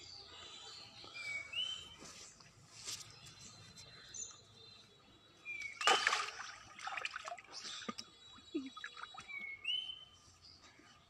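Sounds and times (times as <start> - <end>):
water splashing and sloshing: 5.8 - 8.1.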